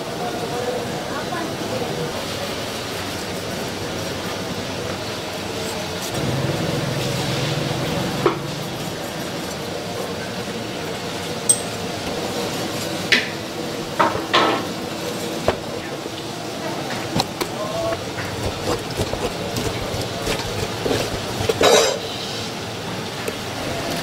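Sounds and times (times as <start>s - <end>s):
cooking noise: 1.1s - 24.0s
utensils clinking against cookware: 11.5s - 13.0s, 17.2s - 22.2s.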